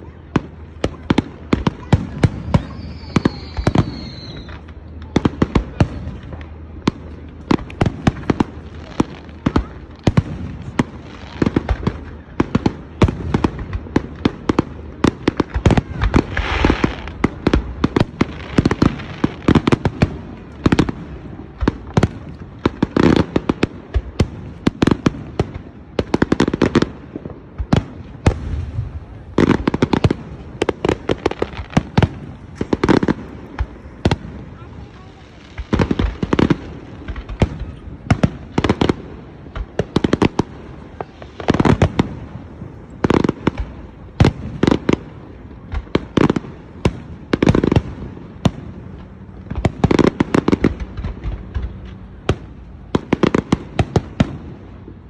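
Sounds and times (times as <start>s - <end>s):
fireworks bursting and banging: 0.0s - 55.0s
falling firework whistle: 2.1s - 5.2s.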